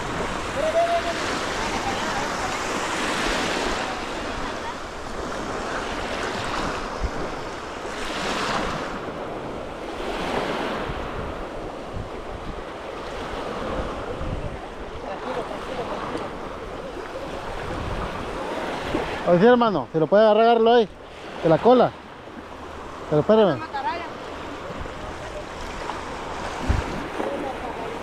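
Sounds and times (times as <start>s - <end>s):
wind buffeting microphone: 0.0s - 15.0s, 15.7s - 19.2s, 24.4s - 28.0s
surf washing in and out: 0.0s - 28.0s.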